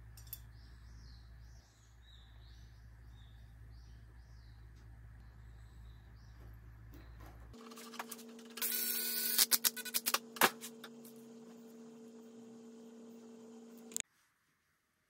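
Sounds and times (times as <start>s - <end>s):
electrical hum: 0.0s - 14.0s
metal parts clicking and clinking: 0.1s - 0.5s.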